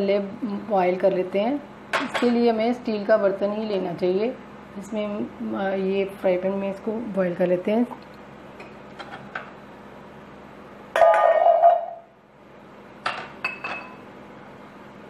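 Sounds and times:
glass bowls clinking: 11.0 - 12.1, 13.1 - 14.0.

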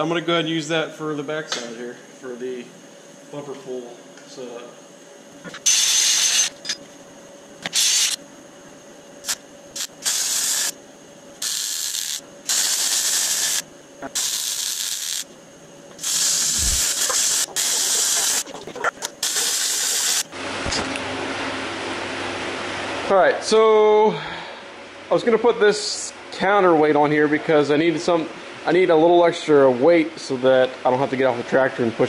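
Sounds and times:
welder arc hissing: 5.5 - 6.6, 7.6 - 8.2, 9.2 - 10.8, 11.4 - 20.3.

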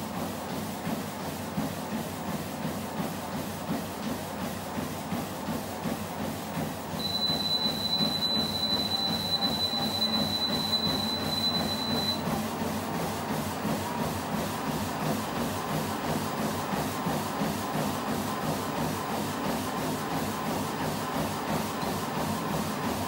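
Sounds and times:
runner's rhythmic footfalls: 0.0 - 23.0
treadmill belt and motor rumble: 0.0 - 23.0.

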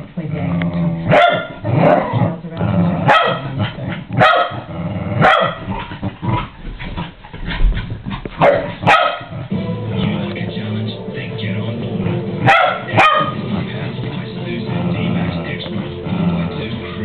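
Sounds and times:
small dog barking: 1.1 - 1.6, 3.1 - 3.4, 4.2 - 4.6, 5.2 - 5.6, 8.4 - 9.3, 12.4 - 13.4.

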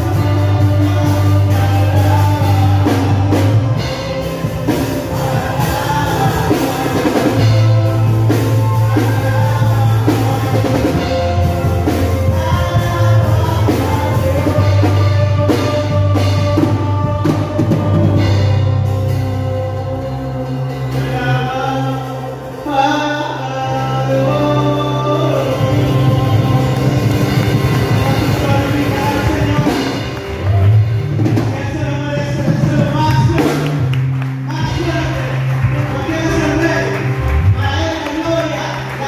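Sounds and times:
person singing: 0.0 - 30.7
bass guitar: 0.0 - 39.0
drums: 0.0 - 39.0
electric guitar: 0.0 - 39.0
electric keyboard: 0.0 - 39.0.

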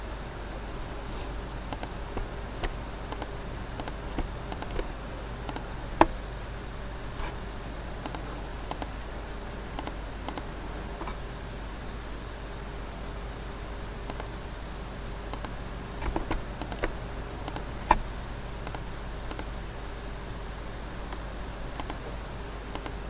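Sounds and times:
microphone hum and hiss: 0.0 - 23.0
computer mouse clicking: 1.6 - 6.2, 8.0 - 8.9, 9.8 - 11.2, 14.1 - 14.3, 15.3 - 19.5, 21.8 - 22.0, 22.7 - 23.0.

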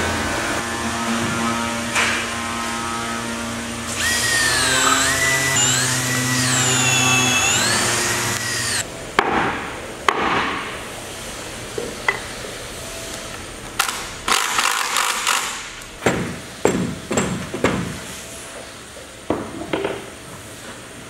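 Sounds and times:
cordless drill boring into wood: 3.9 - 8.8.

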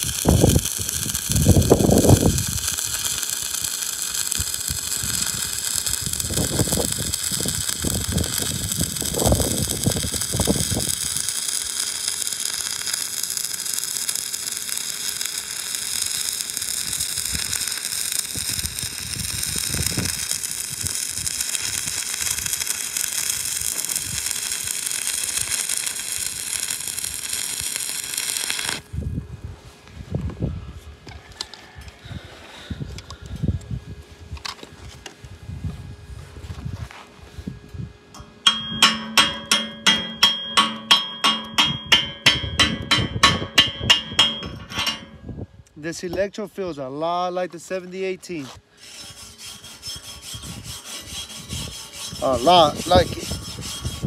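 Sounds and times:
welding arc crackling hiss: 0.0 - 28.9, 45.9 - 54.0.

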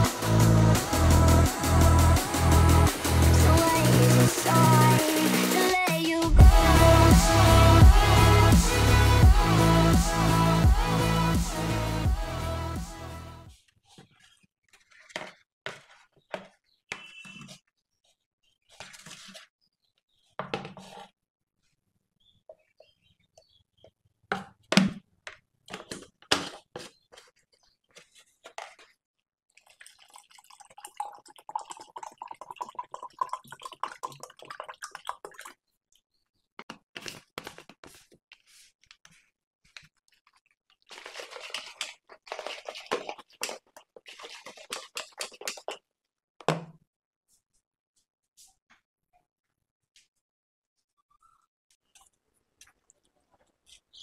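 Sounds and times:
shaker cup sloshing: 29.5 - 35.6, 39.7 - 45.8
water pouring into cup: 29.6 - 35.6, 40.9 - 45.8.

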